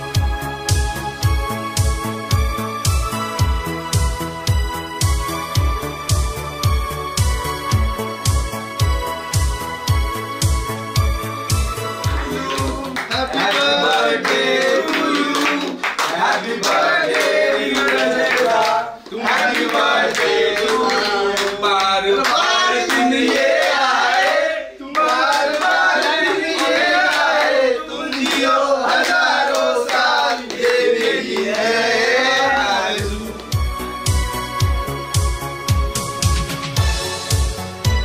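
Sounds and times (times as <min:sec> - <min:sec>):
rhythmic hand clapping: 0:00.1 - 0:38.0
men singing together: 0:12.1 - 0:33.5.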